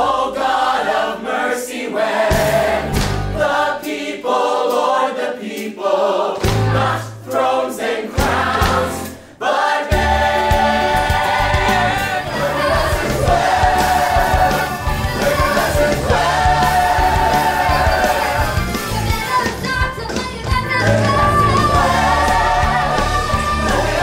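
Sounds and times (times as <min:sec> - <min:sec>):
group singing gospel song: 0:00.0 - 0:19.5, 0:20.6 - 0:24.0
instrumental backing with bass: 0:02.3 - 0:03.6, 0:08.2 - 0:09.2, 0:09.9 - 0:24.0.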